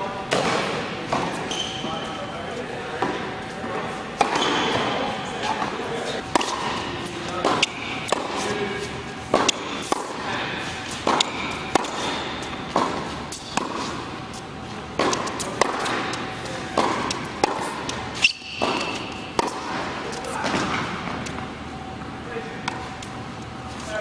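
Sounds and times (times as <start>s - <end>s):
racquets striking tennis ball: 2.9s - 21.5s
ball bouncing on hard court: 4.2s - 5.0s, 9.3s - 10.2s, 11.0s - 14.0s, 15.0s - 21.4s.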